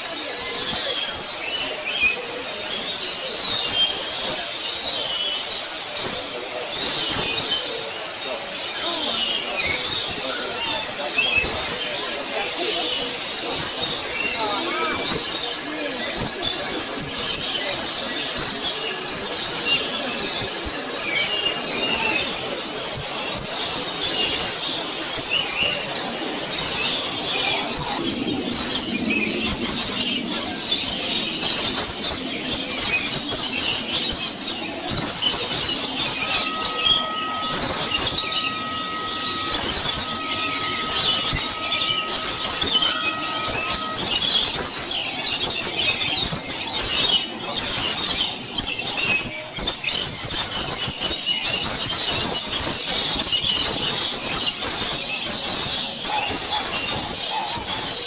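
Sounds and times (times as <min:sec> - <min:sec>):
birds chirping and screeching: 0:00.0 - 0:58.0
thin steady tone: 0:33.7 - 0:46.1.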